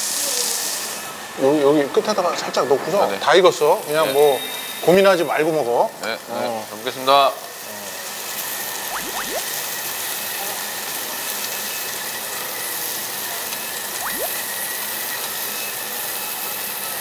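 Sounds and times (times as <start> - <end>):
pork sizzling on a grill: 0.0 - 17.0
rising whistle-like swoops: 8.9 - 9.6, 14.0 - 14.6.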